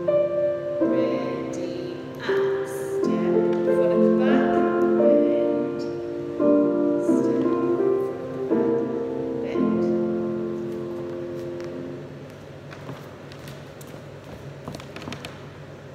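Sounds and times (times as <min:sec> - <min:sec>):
slow gentle piano music: 0:00.0 - 0:13.8.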